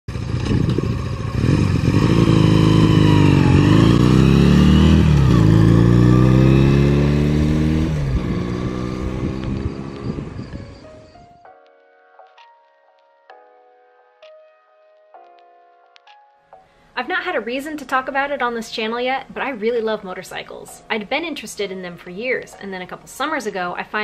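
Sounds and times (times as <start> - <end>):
motorcycle accelerating: 0.1 - 11.2.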